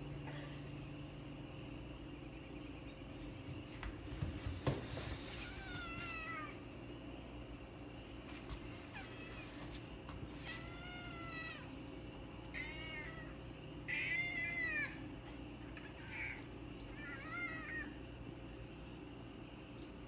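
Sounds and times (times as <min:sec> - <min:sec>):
cat meowing: 0:05.4 - 0:06.6, 0:10.4 - 0:11.8, 0:12.5 - 0:15.0, 0:15.8 - 0:18.0.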